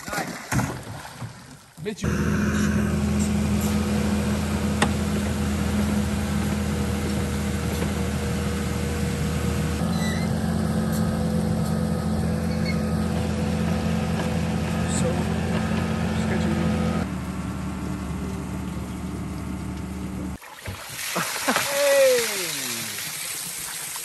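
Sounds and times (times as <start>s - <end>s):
vehicle engine running: 2.0s - 20.4s.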